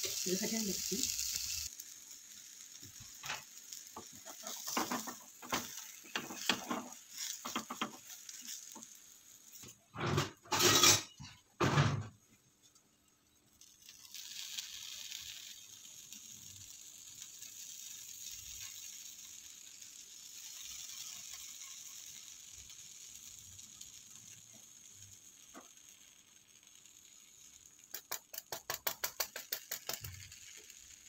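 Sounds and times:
frying pan clicks and scrapes: 0.0 - 12.2, 13.6 - 31.0
faint sizzle: 0.0 - 31.0
frying pan clattering: 3.0 - 12.1, 27.9 - 30.3.

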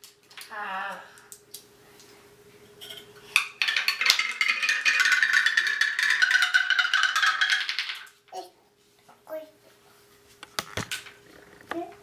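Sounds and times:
balls clattering down wooden leaves: 3.3 - 8.3.

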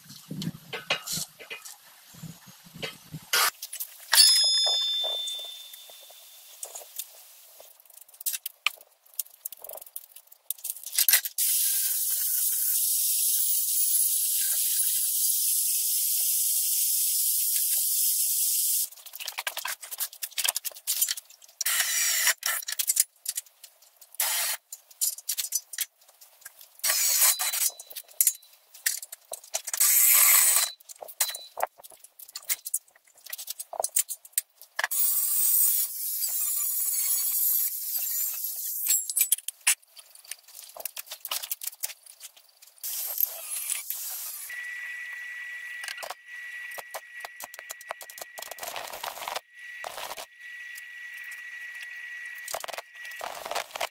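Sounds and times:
metal clanks: 4.1 - 6.2
cordless drill boring metal: 21.6 - 22.5, 24.2 - 24.6, 26.8 - 27.7, 29.8 - 31.4.

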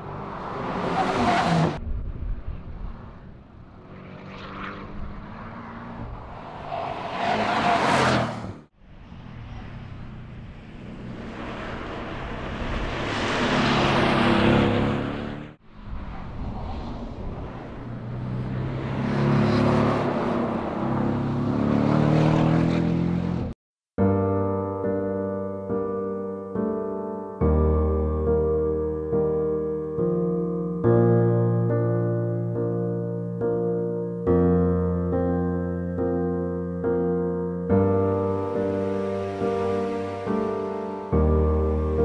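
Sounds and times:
race car passing by: 0.0 - 23.6.

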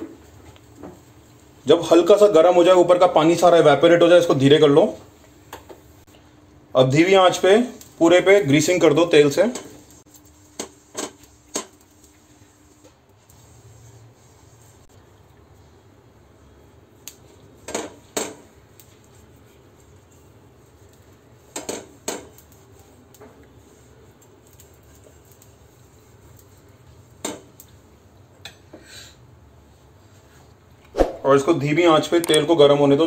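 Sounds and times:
brush on iron griddle: 7.0 - 14.9, 16.4 - 28.0.

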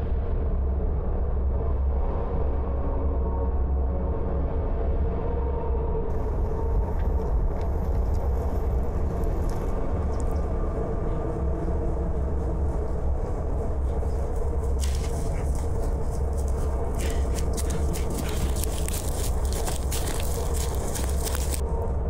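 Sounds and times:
steady low rumble: 0.0 - 22.0
footsteps crunching on pine needles: 12.4 - 21.6.

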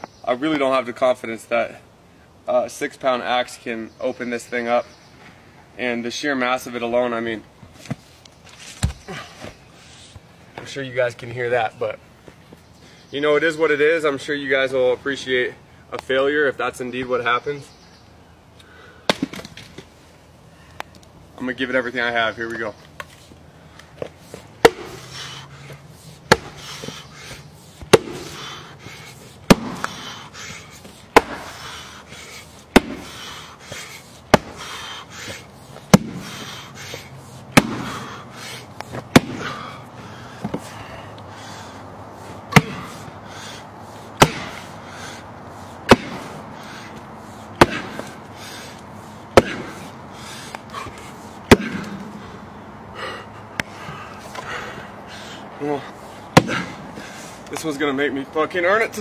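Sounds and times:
axe chopping log: 8.8 - 9.1, 19.1 - 19.7, 24.6 - 25.1, 26.3 - 28.5, 29.5 - 30.1, 31.1 - 31.7, 32.7 - 38.1, 38.9 - 39.7, 42.5 - 43.0, 44.2 - 44.7, 45.9 - 46.4, 47.6 - 48.2, 49.3 - 49.8, 51.5 - 52.1, 56.4 - 56.8.

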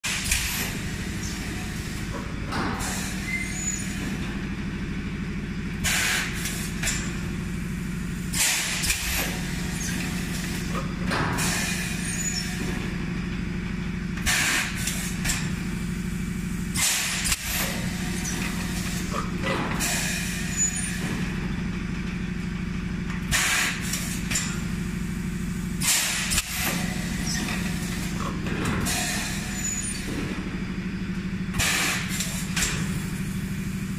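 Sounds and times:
compressed air blast with clank: 0.0 - 4.4, 5.7 - 13.0, 14.2 - 21.5, 23.3 - 30.5, 31.5 - 33.9
machine low hum: 0.0 - 23.3.

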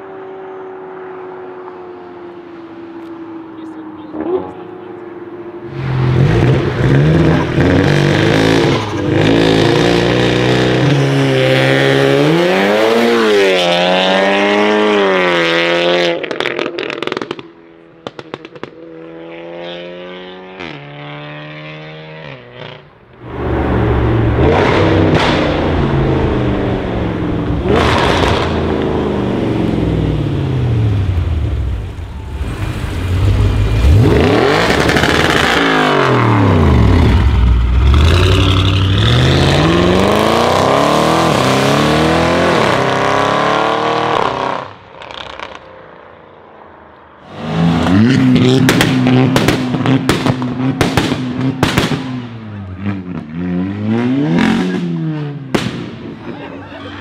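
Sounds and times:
car engines accelerating hard: 0.0 - 45.6, 47.2 - 57.0
deep car engine: 23.0 - 45.6.

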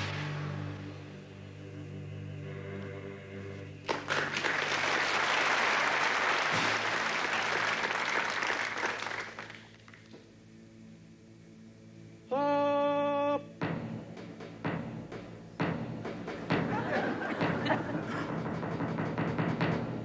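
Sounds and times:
low musical drone: 0.0 - 5.2, 10.2 - 20.0
audience applauding: 3.8 - 10.1.

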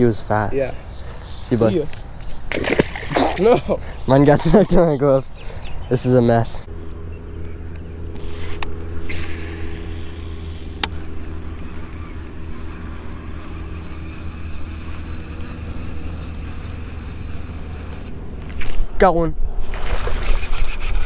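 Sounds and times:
motor humming: 6.7 - 18.8.

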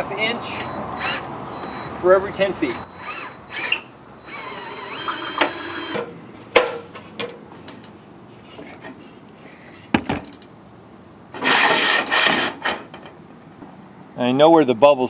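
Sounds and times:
cordless drill whirring: 3.0 - 6.0
harsh metal scrape: 11.4 - 12.9.

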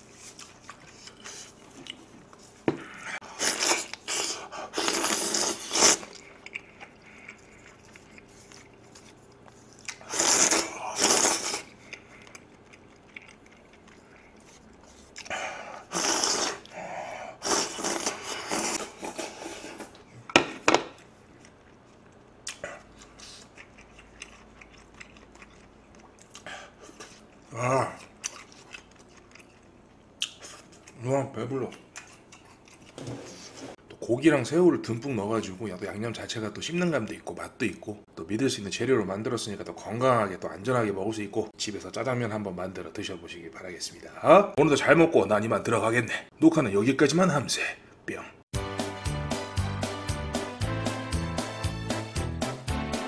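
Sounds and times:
chewing: 0.0 - 2.4, 5.8 - 15.4, 21.0 - 31.0, 31.6 - 33.0
loud wet noodle slurps: 3.3 - 6.2, 10.0 - 11.7, 15.9 - 16.7, 17.4 - 19.9.

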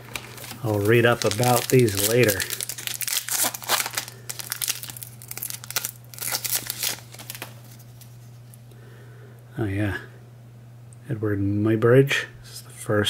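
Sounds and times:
plastic wrapper tearing and crinkling: 0.0 - 8.6.

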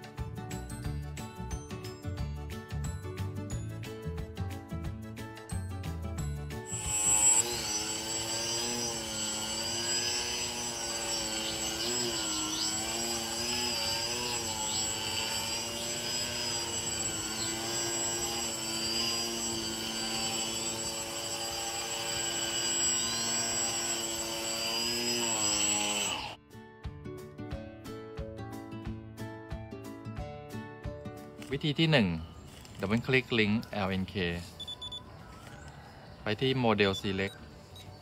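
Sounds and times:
high whine: 6.7 - 24.2
model airplane propeller whirring: 6.7 - 26.4.

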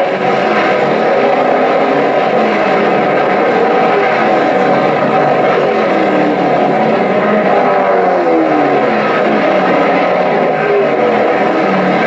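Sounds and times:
race car engines drone: 0.0 - 12.0.

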